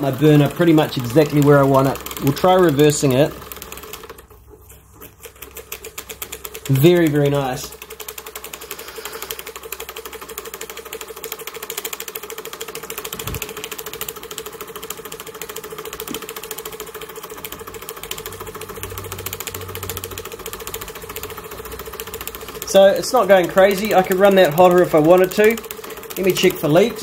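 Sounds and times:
steam engine mechanical ticking: 0:00.0 - 0:04.2, 0:05.7 - 0:27.0
steady hum: 0:13.0 - 0:13.8.

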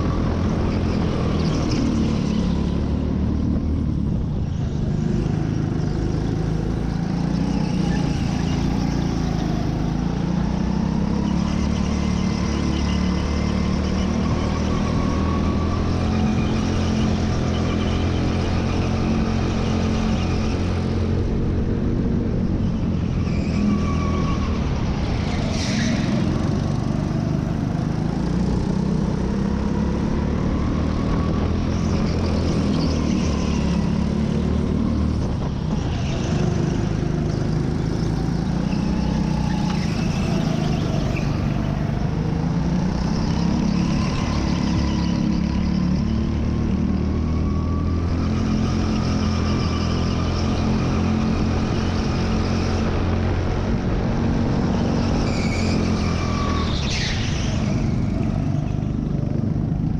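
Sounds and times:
go-kart motor revving: 0:24.5 - 0:59.9.

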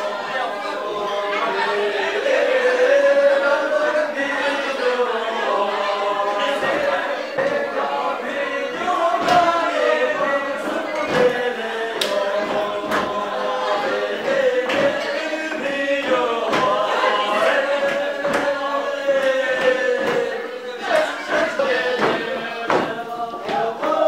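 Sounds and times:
group of voices singing: 0:00.0 - 0:24.0.

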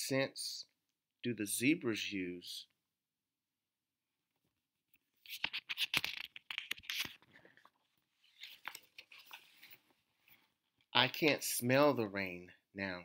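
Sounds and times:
book page turning: 0:05.2 - 0:10.0.

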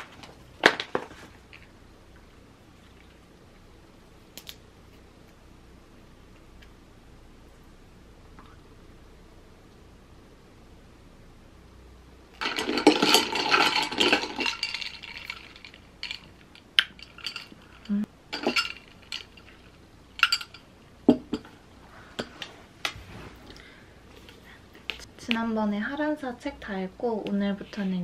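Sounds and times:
ice cubes clinking in glass: 0:12.4 - 0:20.6.

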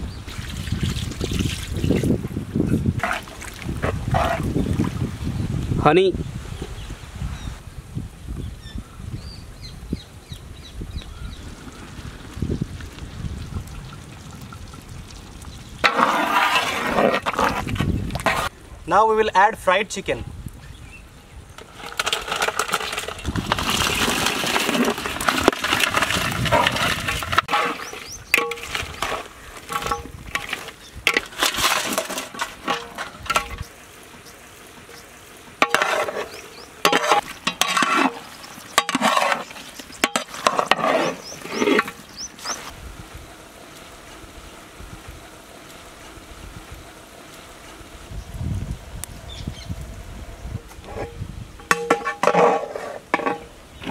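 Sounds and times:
metal ladle scraping pot: 0:15.8 - 0:18.5, 0:21.6 - 0:33.7, 0:35.6 - 0:42.7, 0:50.8 - 0:53.9.

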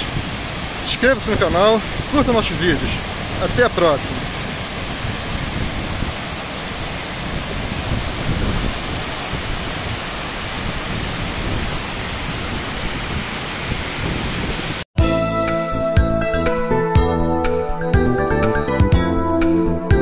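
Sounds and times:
waterfall pouring into a pool: 0:00.0 - 0:14.8.

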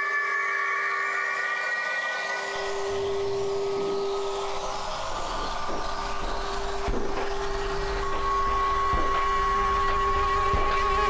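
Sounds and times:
higher electronic tones: 0:00.0 - 0:11.0
hissing noise: 0:02.5 - 0:11.0.

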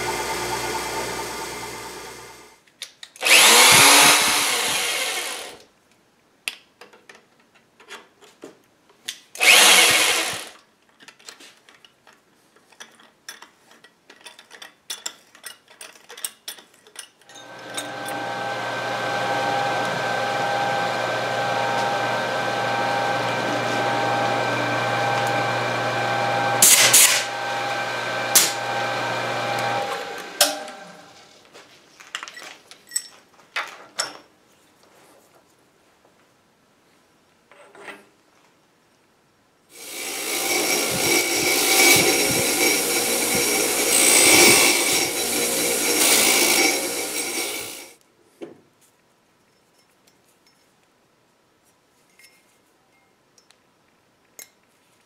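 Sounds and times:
drill press motor running: 0:00.0 - 0:02.5, 0:03.2 - 0:05.6, 0:09.4 - 0:10.5, 0:17.4 - 0:31.0, 0:39.8 - 0:47.9
loud noisy bursts: 0:09.4 - 0:10.5, 0:39.8 - 0:47.9
metal clinks and knocks: 0:32.1 - 0:34.2.

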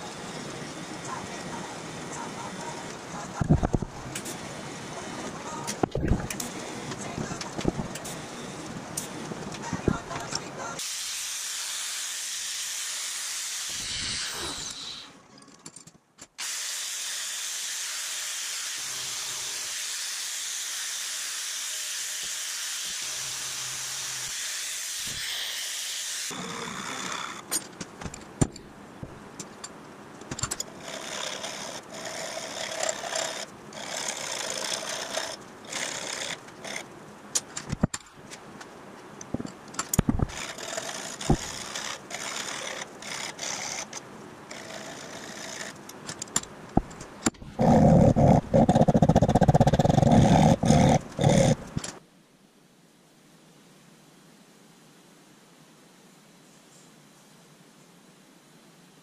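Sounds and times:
angle grinder grinding metal: 0:11.6 - 0:15.1, 0:30.6 - 0:36.8, 0:40.2 - 0:45.8, 0:47.5 - 0:51.9.

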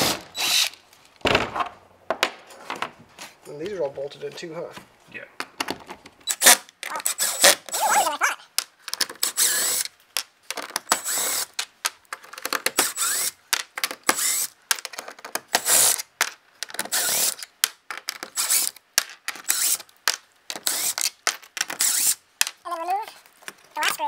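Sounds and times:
cordless drill running in bursts: 0:11.0 - 0:11.5, 0:14.2 - 0:14.5.

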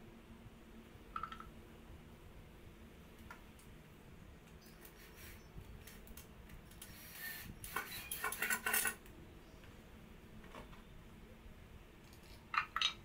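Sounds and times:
wooden sticks clattering on tile: 0:07.7 - 0:09.1, 0:12.0 - 0:13.0.

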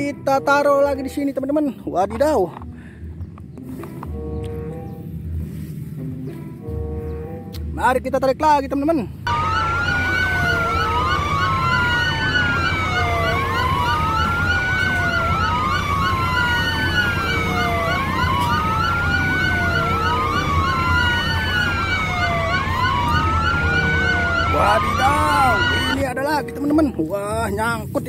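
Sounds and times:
siren wailing: 0:09.3 - 0:26.1.

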